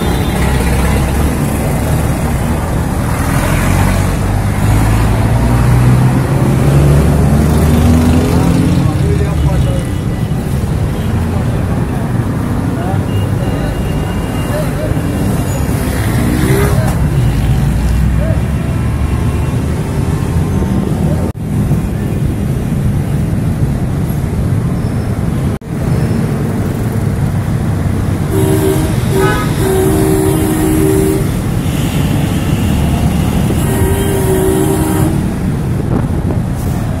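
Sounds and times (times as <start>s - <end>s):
vehicle horns: 0.0s - 1.9s, 28.2s - 35.7s
idling traffic rumble: 0.0s - 37.0s.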